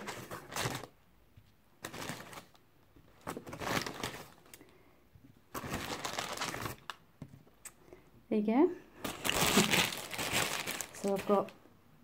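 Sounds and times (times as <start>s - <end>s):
paper bag rustling: 0.0s - 0.9s, 1.8s - 4.6s, 5.5s - 6.9s, 9.0s - 11.5s.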